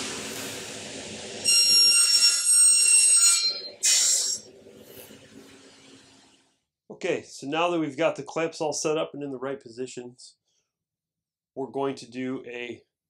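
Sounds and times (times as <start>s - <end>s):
compressed air hiss: 0.0s - 1.1s, 3.8s - 5.2s
high whistling hiss: 1.4s - 6.3s.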